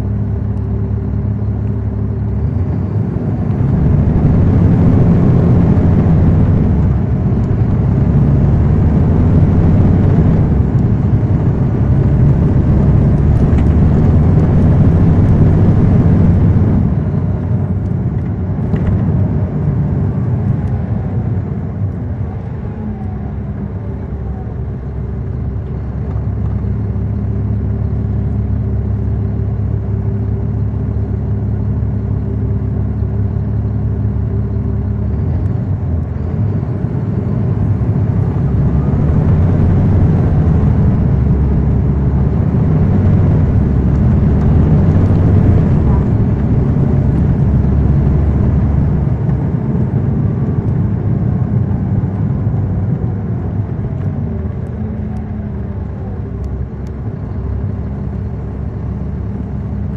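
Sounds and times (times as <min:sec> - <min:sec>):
bus diesel engine: 0:00.0 - 0:59.9
falling whine: 0:01.5 - 0:17.9, 0:36.3 - 0:51.1.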